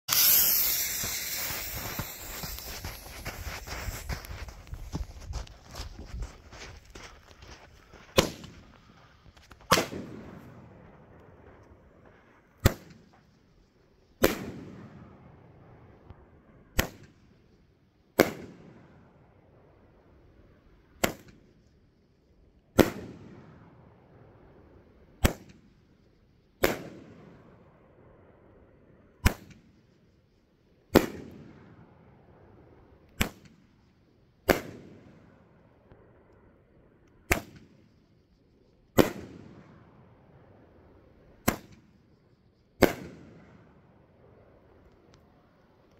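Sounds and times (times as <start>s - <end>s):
firework shell bursting bang: 0.1s - 3.2s
firework launch thump: 0.1s - 5.4s, 8.1s - 8.7s.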